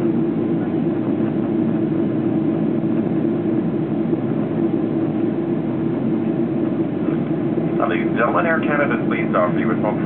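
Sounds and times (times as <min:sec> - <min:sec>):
airplane cabin roar: 0:00.0 - 0:10.0.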